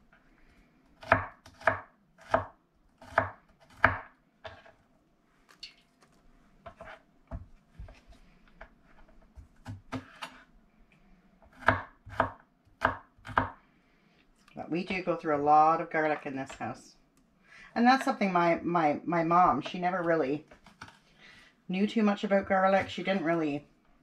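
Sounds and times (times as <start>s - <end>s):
knife chopping on wooden board: 1.0s - 4.7s, 11.5s - 13.6s.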